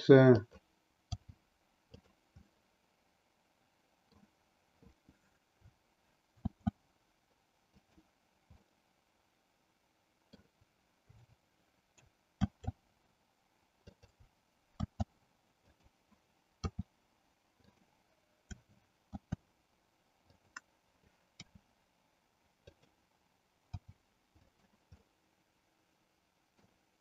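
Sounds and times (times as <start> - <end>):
mouse buttons clicking: 14.8 - 15.1, 16.6 - 16.9, 18.4 - 19.4.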